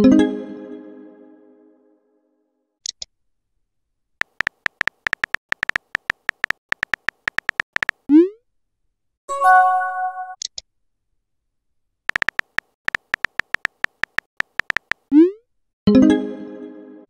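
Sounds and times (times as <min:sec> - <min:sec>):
keyboard tap clicks: 0:04.2 - 0:08.0, 0:12.1 - 0:15.1
quick high clicks: 0:04.2 - 0:08.1, 0:12.1 - 0:15.1.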